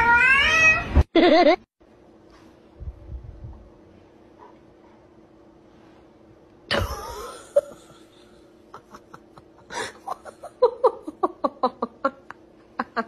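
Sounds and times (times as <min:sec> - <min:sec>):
person laughing wheezily: 0:08.8 - 0:13.0.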